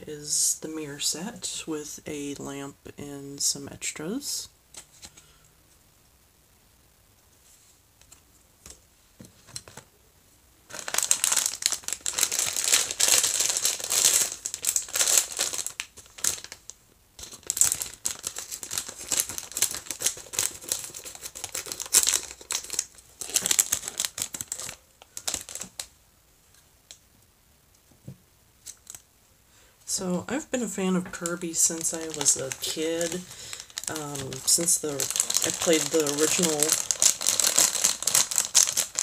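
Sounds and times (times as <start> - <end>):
plastic packaging crinkling and tearing: 10.7 - 25.9, 28.6 - 29.0, 30.6 - 39.0.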